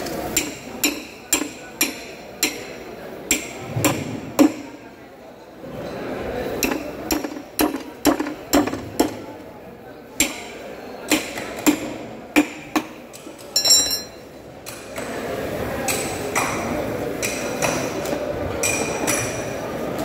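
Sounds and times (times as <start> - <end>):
short metallic ring: 13.6 - 14.2.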